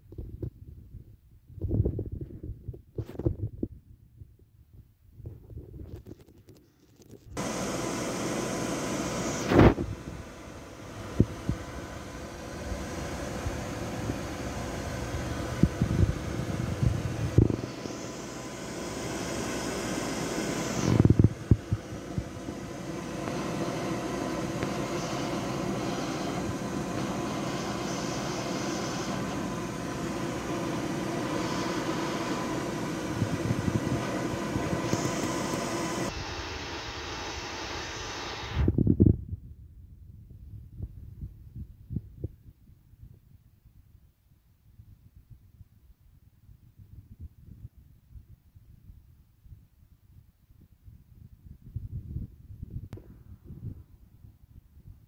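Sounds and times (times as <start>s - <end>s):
fan whirring: 5.2s - 42.6s.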